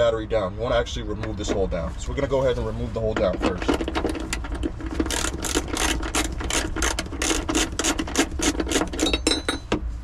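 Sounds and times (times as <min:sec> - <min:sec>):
socket ratchet clicking: 0:04.2 - 0:09.7.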